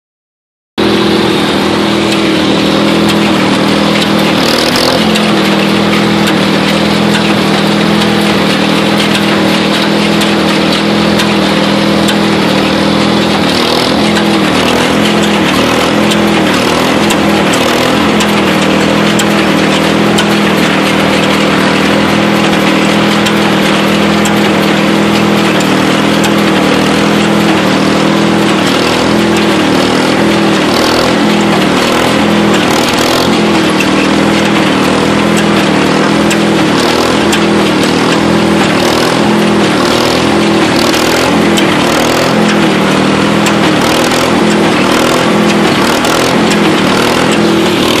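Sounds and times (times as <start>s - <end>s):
rhythmic baler clatter: 0.8s - 48.0s
tractor and baler engines running: 0.8s - 48.0s.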